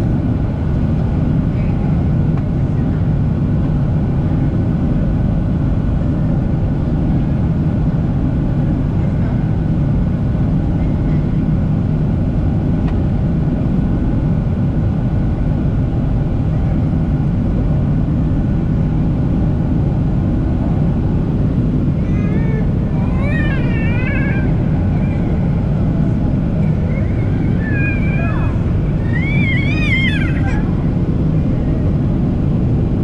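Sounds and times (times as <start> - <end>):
airplane cabin noise: 0.0 - 33.0
high wavering cry: 26.6 - 31.0.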